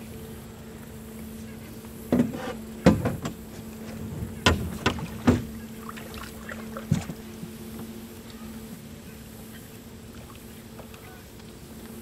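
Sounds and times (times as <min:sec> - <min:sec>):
steady low hum: 0:00.0 - 0:12.0
sharp knocks on metal boat hull: 0:02.1 - 0:03.4, 0:04.4 - 0:05.5.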